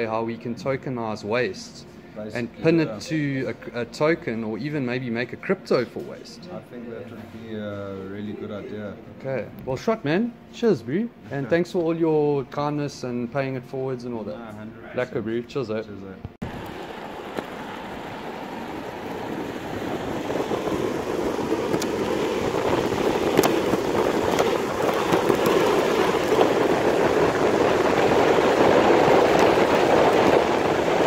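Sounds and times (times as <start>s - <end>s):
skateboard wheels rolling on asphalt: 16.4s - 31.0s
wind on microphone: 16.4s - 31.0s
skateboard clicks: 16.6s - 17.7s, 18.8s - 31.0s.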